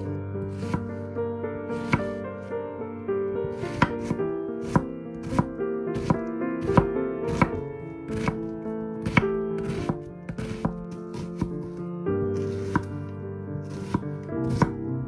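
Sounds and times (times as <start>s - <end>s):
background music: 0.0s - 15.0s
knife chopping on cutting board: 0.5s - 1.0s, 1.8s - 2.2s, 3.5s - 11.8s, 12.4s - 12.9s, 13.7s - 14.8s.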